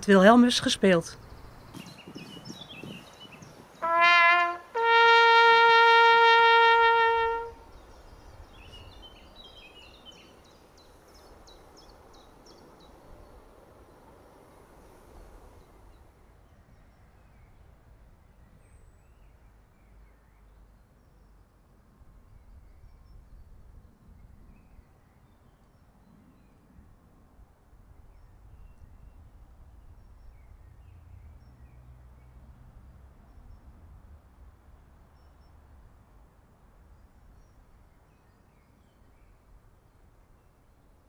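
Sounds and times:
faint birdsong: 0.0 - 26.9, 27.8 - 32.6, 35.0 - 35.8, 36.8 - 41.0
trumpet signal: 3.8 - 7.6.

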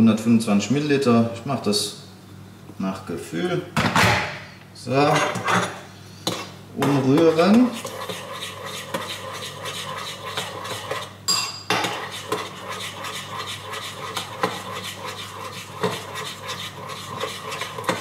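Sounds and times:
spoon stirring porridge: 6.3 - 18.0.

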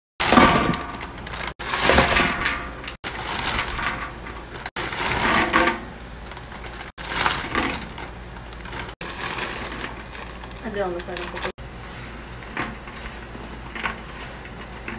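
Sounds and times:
candy poured into metal bowl: 6.5 - 11.6.

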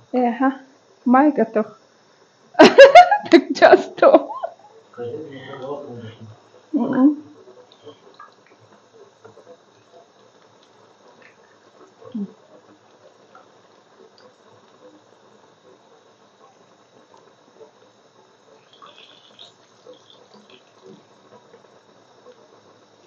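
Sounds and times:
food deep-frying in oil: 6.3 - 23.0.

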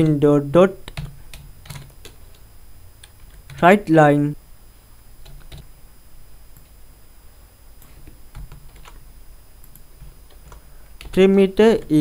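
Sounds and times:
computer keyboard keystrokes: 0.8 - 2.4, 5.2 - 5.6, 8.3 - 9.0, 9.6 - 11.2.

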